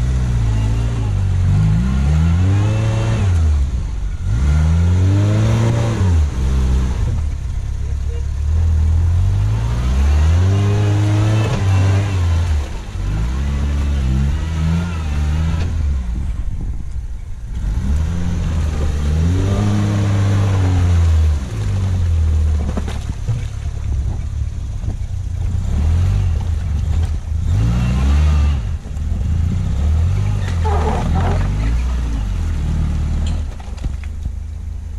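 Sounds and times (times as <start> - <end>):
small engine revving: 9.1 - 16.0, 17.5 - 22.0, 25.5 - 33.5.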